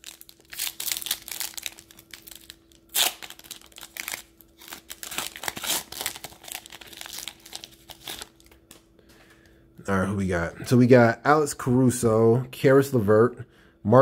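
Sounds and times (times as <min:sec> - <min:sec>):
foil wrapper tearing and crinkling: 0:00.0 - 0:08.7.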